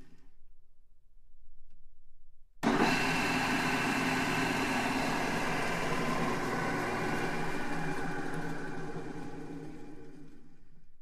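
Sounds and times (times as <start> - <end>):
drill press humming and whining: 2.6 - 10.9.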